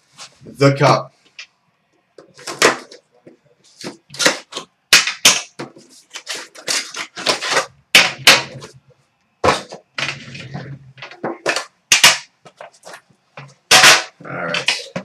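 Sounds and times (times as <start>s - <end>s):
hard case knocking and scraping: 9.4s - 11.7s.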